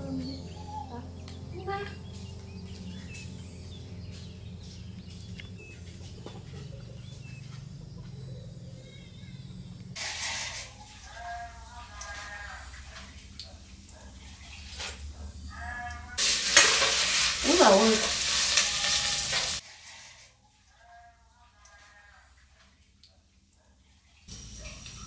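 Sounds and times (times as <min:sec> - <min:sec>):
small birds chirping: 0:00.0 - 0:10.0
steady low hum: 0:00.0 - 0:10.0
animal bleating: 0:15.5 - 0:16.2.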